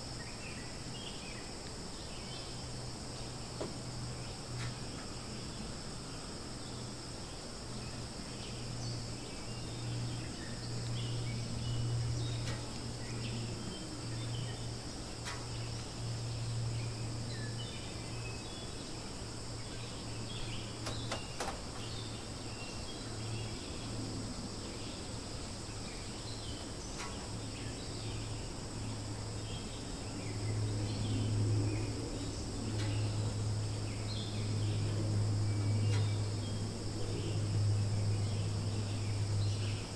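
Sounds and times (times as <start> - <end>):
high-pitched insect chorus: 0.0 - 39.9
low continuous hum: 0.0 - 39.9.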